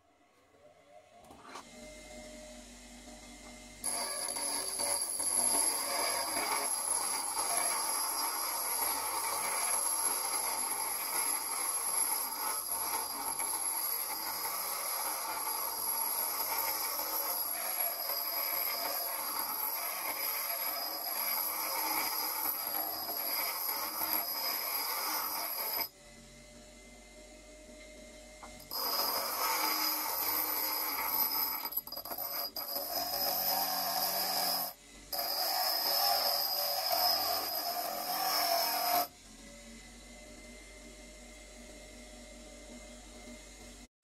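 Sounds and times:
power tool motor whine: 0:03.8 - 0:25.9, 0:28.4 - 0:40.5.

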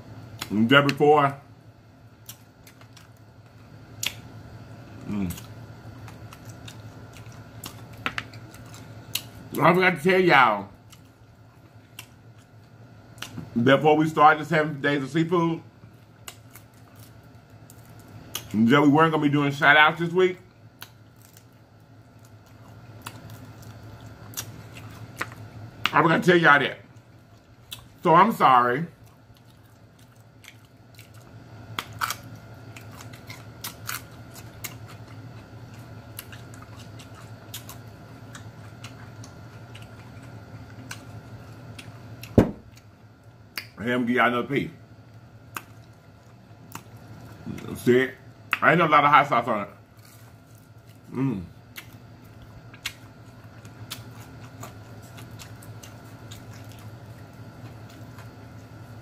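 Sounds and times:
steady low hum: 0:00.0 - 0:59.0
wet clicks and smacks: 0:04.0 - 0:04.3
mouth chewing food: 0:04.9 - 0:09.6, 0:20.7 - 0:26.0, 0:28.9 - 0:42.9, 0:50.1 - 0:58.8.

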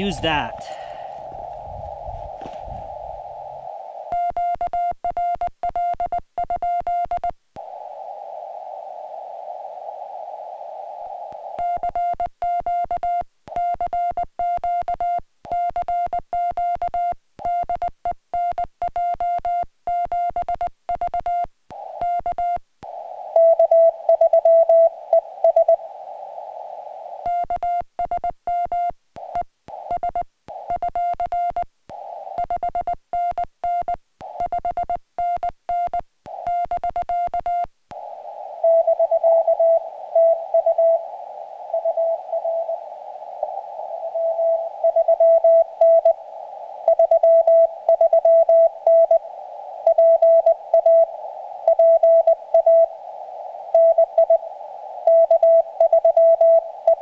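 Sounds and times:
lower morse tone: 0:00.0 - 0:06.0, 0:06.6 - 0:12.8, 0:21.2 - 0:27.8, 0:38.0 - 0:57.0
radio receiver hiss: 0:00.0 - 0:06.5, 0:07.1 - 0:17.7, 0:20.3 - 0:57.0
morse code sidetone beeps: 0:04.1 - 0:07.4, 0:11.4 - 0:22.6, 0:23.3 - 0:25.8, 0:27.2 - 0:31.7, 0:32.3 - 0:37.7, 0:38.6 - 0:42.8, 0:43.9 - 0:46.2, 0:46.8 - 0:53.0, 0:53.7 - 0:54.4, 0:55.0 - 0:57.0.

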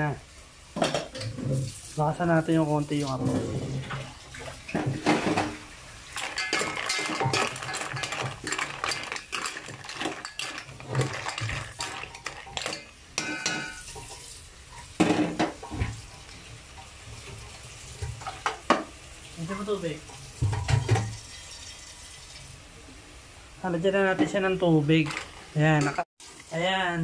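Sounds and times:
watery cooking hiss: 0:00.0 - 0:27.0
mussel shells clattering against pot: 0:06.1 - 0:14.1, 0:25.0 - 0:26.0.

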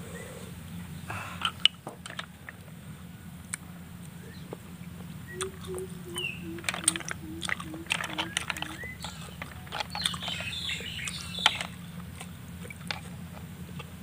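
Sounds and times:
bird chirp: 0:04.1 - 0:12.6
snail shells clicking on a plate: 0:05.4 - 0:13.9.

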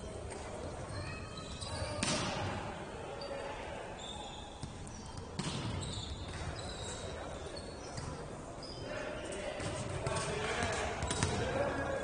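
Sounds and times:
shoes squeaking on court: 0:00.9 - 0:02.2, 0:04.0 - 0:11.4.

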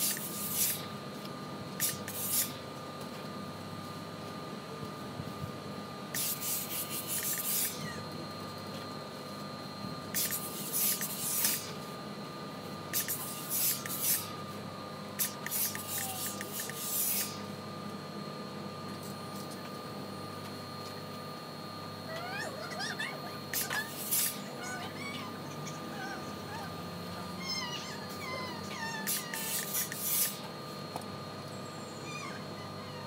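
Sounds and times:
ironing equipment humming: 0:00.0 - 0:01.0, 0:06.1 - 0:09.3, 0:10.0 - 0:18.9, 0:22.7 - 0:24.7, 0:29.0 - 0:31.4
steam iron hissing bursts: 0:01.8 - 0:02.6, 0:06.2 - 0:07.8, 0:10.2 - 0:11.8, 0:13.0 - 0:14.3, 0:15.2 - 0:17.4, 0:23.6 - 0:24.4, 0:29.1 - 0:30.4.

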